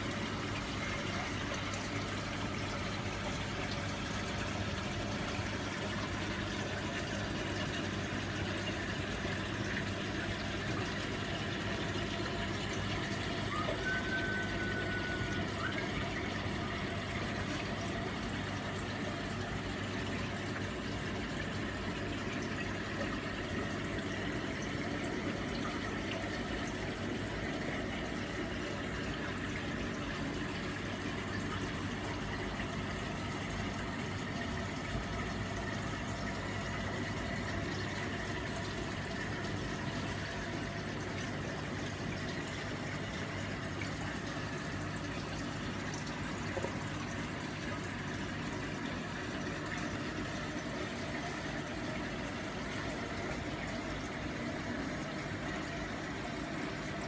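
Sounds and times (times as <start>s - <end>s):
low pump hum: 0.0s - 57.0s
water rushing and trickling: 0.0s - 57.0s.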